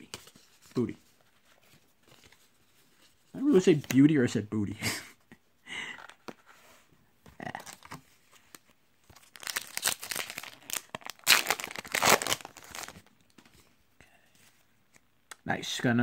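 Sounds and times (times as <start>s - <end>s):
foil wrapper tearing and crinkling: 9.2s - 13.0s.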